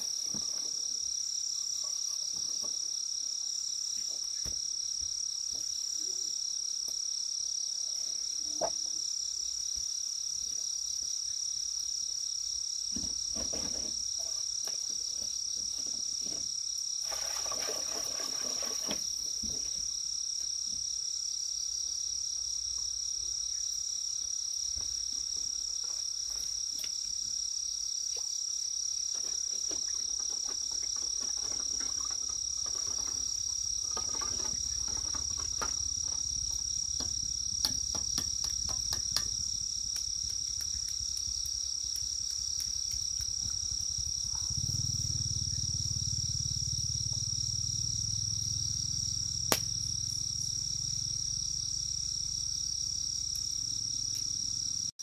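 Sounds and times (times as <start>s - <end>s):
insects chirping: 0.0s - 55.0s.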